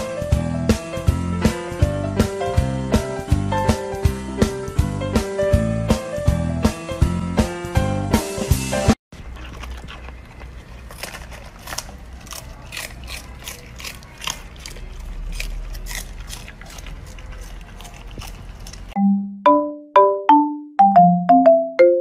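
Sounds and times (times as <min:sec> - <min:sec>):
puppy crunching cabbage leaves: 0:09.1 - 0:19.0.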